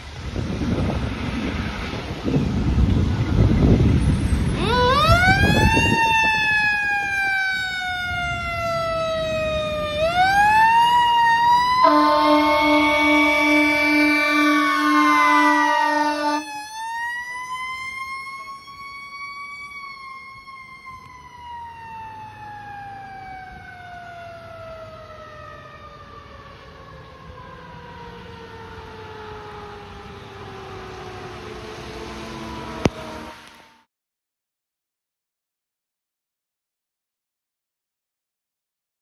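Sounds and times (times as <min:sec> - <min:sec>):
fire engine driving away: 0:00.0 - 0:33.9
fire engine siren: 0:00.0 - 0:33.9
fire engine horn blast: 0:11.3 - 0:16.6.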